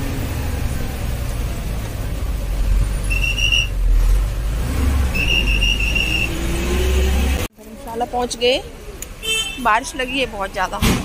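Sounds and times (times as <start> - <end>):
bus engine rumbling: 0.0 - 11.0
high-pitched squeals: 2.9 - 3.8, 4.8 - 7.4.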